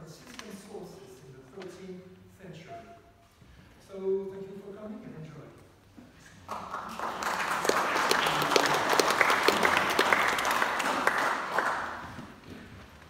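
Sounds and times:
audience applauding: 6.5 - 12.4.

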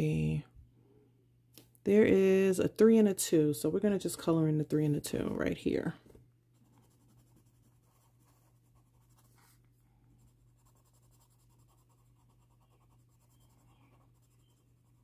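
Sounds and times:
low steady hum: 0.0 - 15.0
pencil scratching on paper: 6.6 - 9.6, 10.2 - 15.0.

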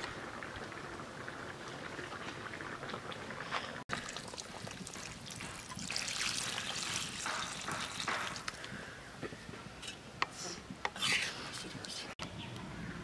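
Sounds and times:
water pouring into curry: 3.9 - 8.6.

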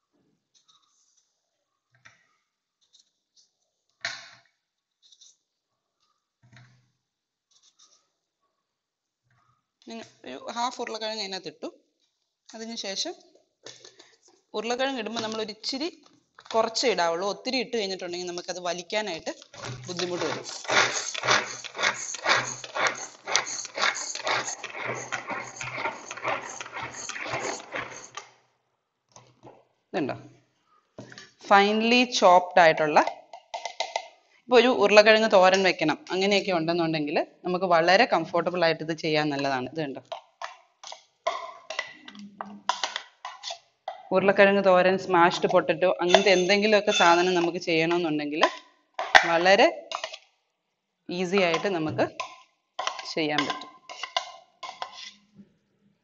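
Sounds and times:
knife cutting raw potato: 19.6 - 28.2.

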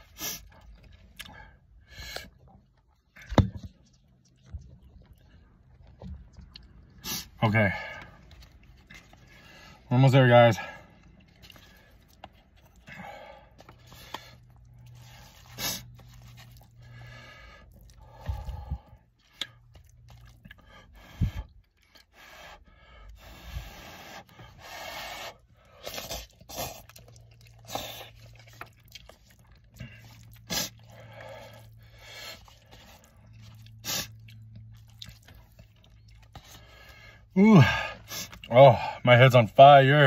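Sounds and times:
low steady hum: 0.0 - 40.0
slurping noodles: 10.6 - 38.5.

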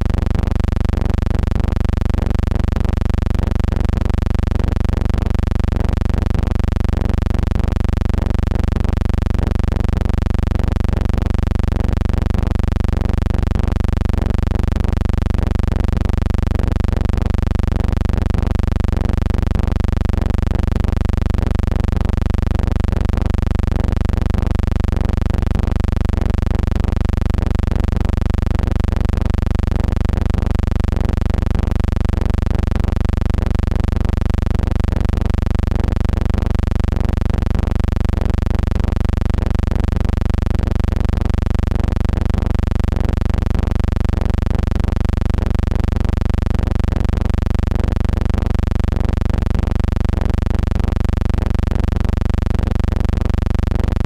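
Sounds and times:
electrical hum: 0.0 - 54.0.

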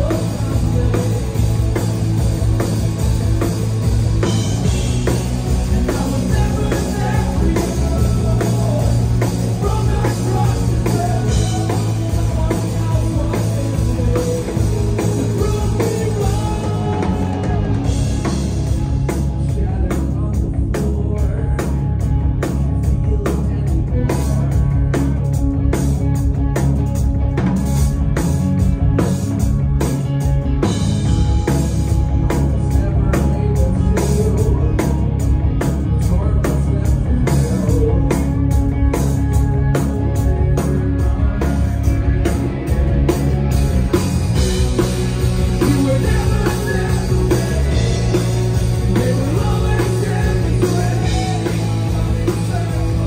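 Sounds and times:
bass guitar: 0.0 - 53.0
drum kit beat: 0.0 - 53.0
electric guitar: 0.0 - 53.0
person singing: 4.2 - 25.4, 32.2 - 43.2, 45.4 - 53.0.

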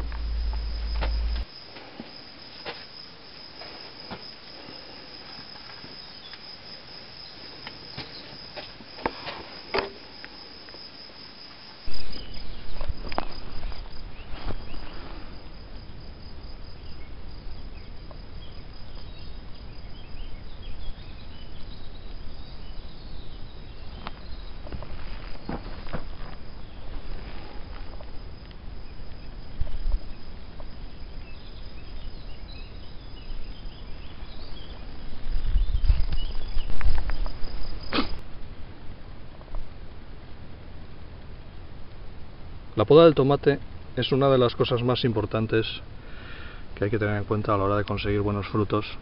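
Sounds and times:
low rumble: 0.0 - 1.5
insects trilling: 0.0 - 49.0.

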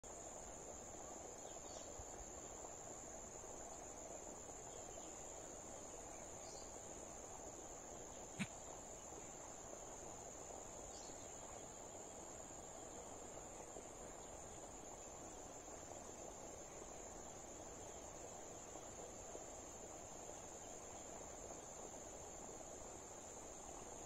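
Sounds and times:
insects trilling: 0.1 - 24.0.

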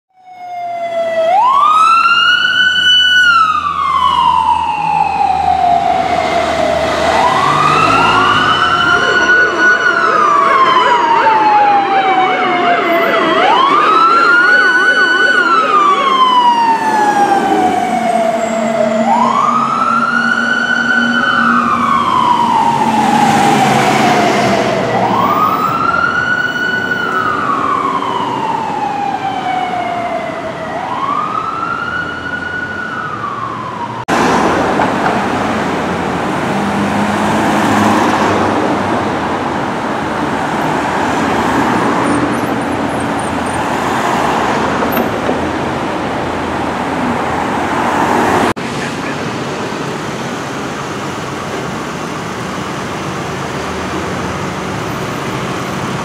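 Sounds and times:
emergency vehicle sirens wailing: 0.1 - 56.0
siren fast yelp: 0.2 - 34.0.

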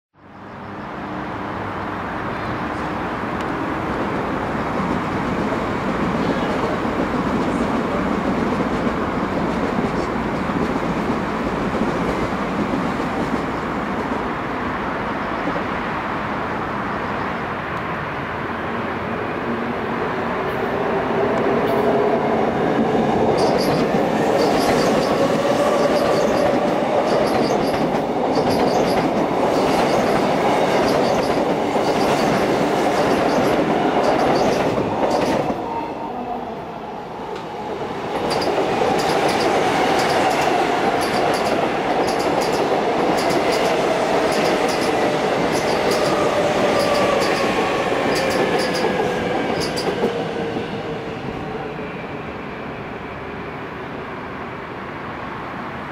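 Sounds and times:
train wheels clicking over rail joints: 23.3 - 35.6, 38.1 - 50.2
electric train running with whine: 38.3 - 53.5.

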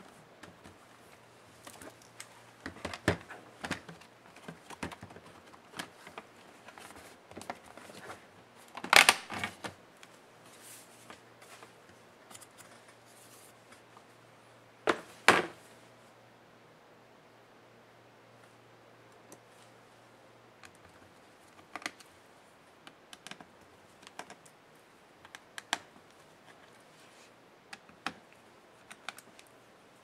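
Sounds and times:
plastic cover clicks and snaps: 8.8 - 9.5.

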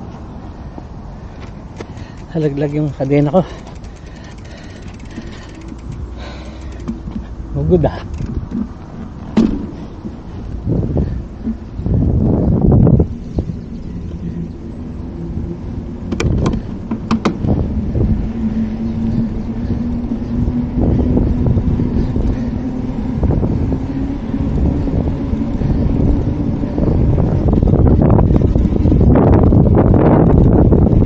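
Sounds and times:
wind buffeting microphone: 0.0 - 31.0
bicycle rolling on paving tiles: 1.2 - 11.7, 13.0 - 31.0
sharp clicks: 1.8 - 7.2, 8.0 - 8.7.

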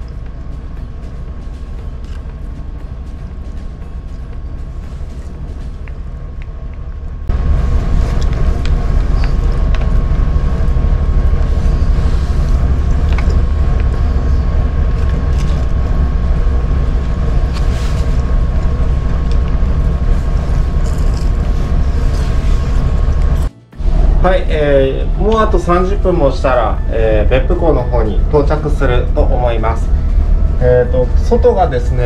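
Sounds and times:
ship engine rumble: 0.0 - 32.0
steady higher hum: 0.0 - 32.0.

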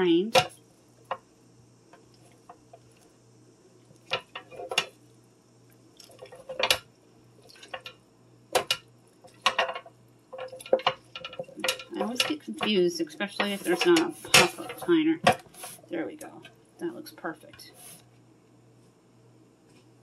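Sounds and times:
drips: 5.9 - 6.6.

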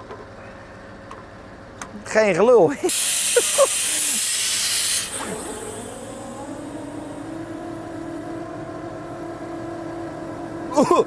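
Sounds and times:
truck engine droning: 0.0 - 11.0
loud hiss: 2.9 - 7.4.

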